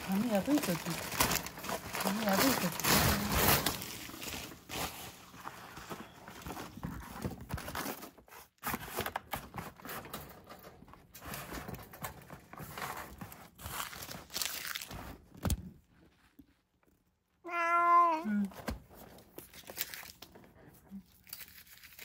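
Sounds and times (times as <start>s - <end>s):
paper crinkling and tearing: 0.0s - 10.1s, 11.3s - 15.3s, 18.6s - 22.0s.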